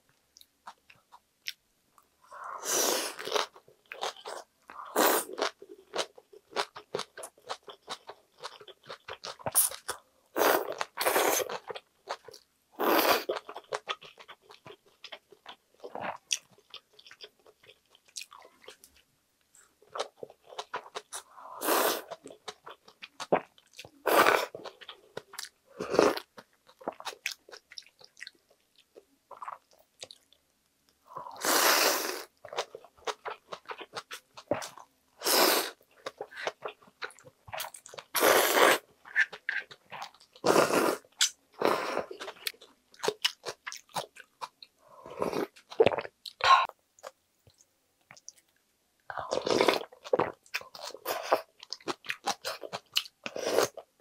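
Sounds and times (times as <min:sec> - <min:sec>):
slurping noodles: 0:31.3 - 0:32.3, 0:38.2 - 0:39.3.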